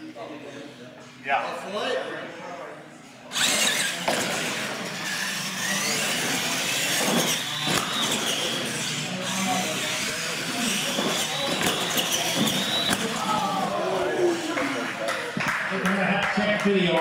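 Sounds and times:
toy truck electric motors whining: 0:03.3 - 0:15.0.

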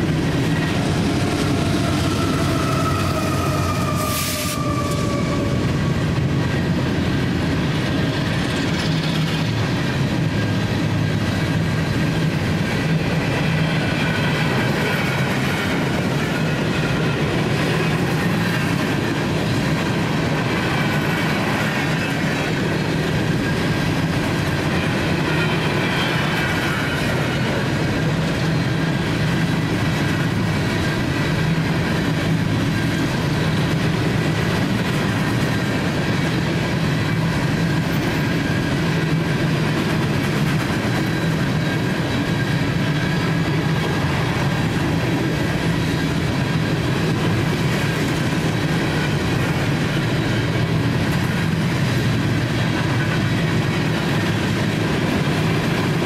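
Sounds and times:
train wheels rumbling on rails: 0:00.0 - 0:56.0
high wheel squeal: 0:00.5 - 0:06.1.

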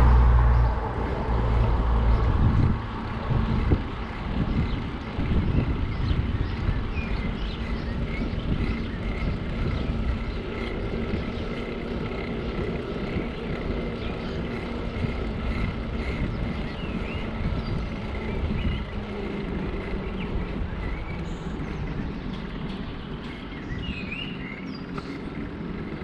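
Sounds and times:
bicycle tyre rumble: 0:00.0 - 0:26.0
wind on microphone: 0:00.0 - 0:26.0.

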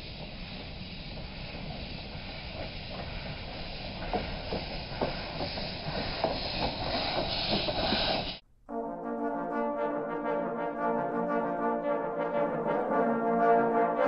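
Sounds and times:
steam hissing: 0:00.0 - 0:08.4
steam locomotive chugging: 0:00.0 - 0:08.4.

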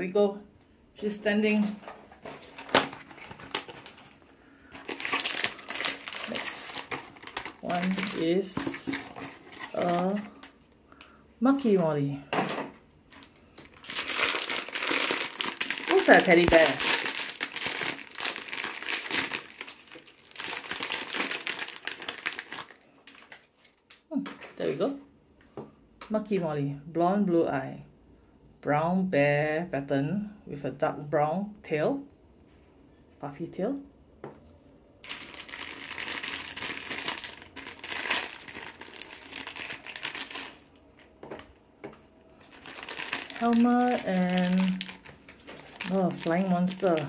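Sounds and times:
plastic wrapping crinkling: 0:01.6 - 0:10.7, 0:13.1 - 0:24.7, 0:35.0 - 0:47.0.

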